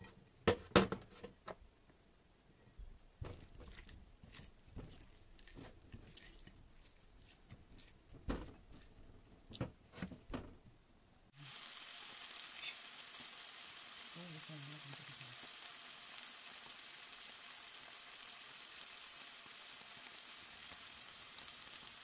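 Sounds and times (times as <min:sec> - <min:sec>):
hands rubbing raw chicken: 0:03.3 - 0:10.3
chicken sizzling in a pan: 0:11.3 - 0:22.0.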